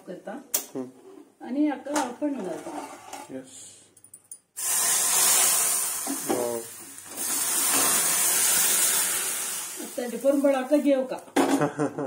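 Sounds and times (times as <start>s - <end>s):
hot oil sizzling in stew: 4.6s - 11.2s.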